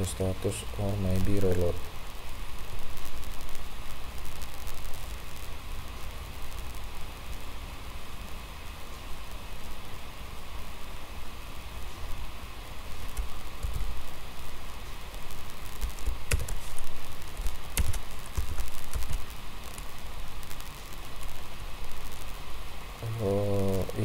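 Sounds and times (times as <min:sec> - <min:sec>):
background hiss: 0:00.0 - 0:24.0
keyboard and mouse clicking: 0:15.9 - 0:16.6, 0:17.8 - 0:19.2.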